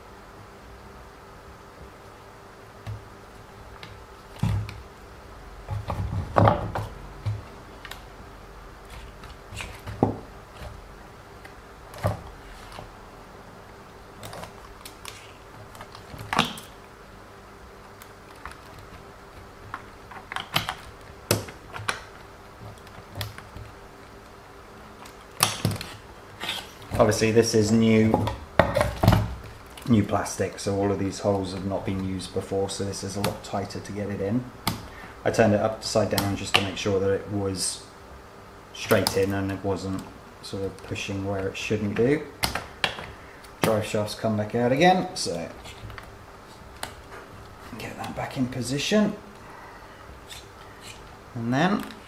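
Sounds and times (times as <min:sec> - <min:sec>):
faint steady hum: 0:00.0 - 0:52.0
plastic parts clicking and knocking: 0:18.0 - 0:23.8.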